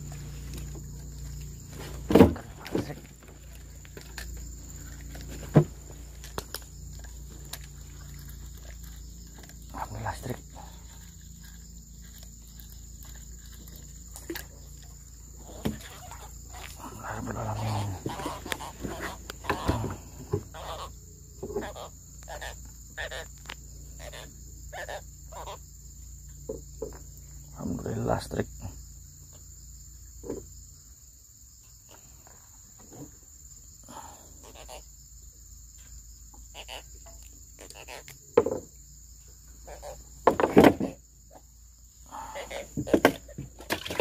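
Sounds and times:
insect chorus: 0.0s - 44.0s
thump: 1.8s - 3.0s, 30.2s - 30.5s, 38.4s - 38.7s, 40.2s - 41.0s.

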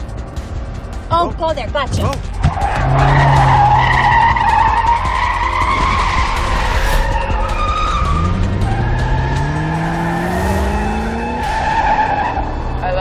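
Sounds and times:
car engine revving: 0.0s - 13.0s
tyres squealing: 1.9s - 10.1s.

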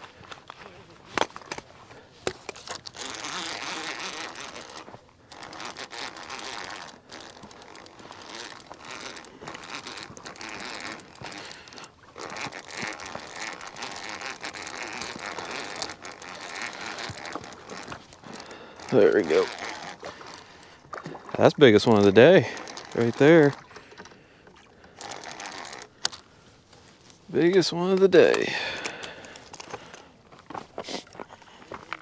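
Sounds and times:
fishing reel clicking: 2.5s - 20.9s, 21.7s - 26.3s, 28.3s - 30.1s.

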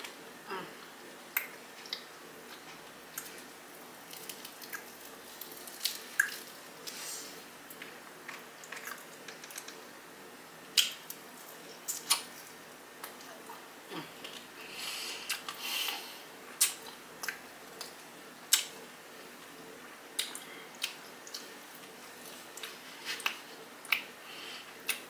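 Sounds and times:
biting and chewing food: 1.3s - 7.1s, 7.7s - 9.9s.

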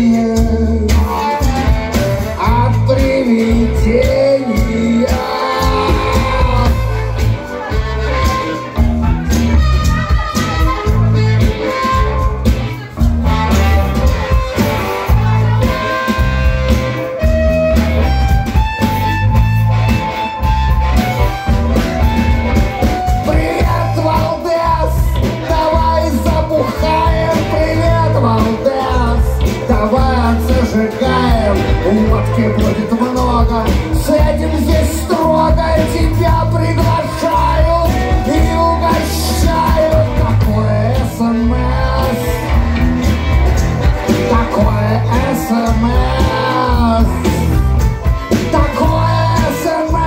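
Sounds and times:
bass guitar: 0.0s - 50.0s
drum kit: 0.0s - 50.0s
electric guitar: 0.0s - 50.0s
harmonica: 0.0s - 50.0s.

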